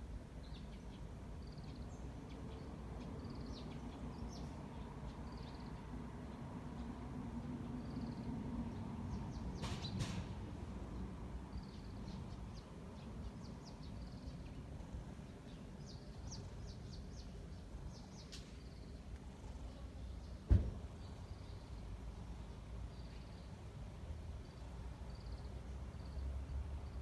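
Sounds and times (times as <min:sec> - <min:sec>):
small birds chirping: 0:00.3 - 0:07.0, 0:10.8 - 0:27.0.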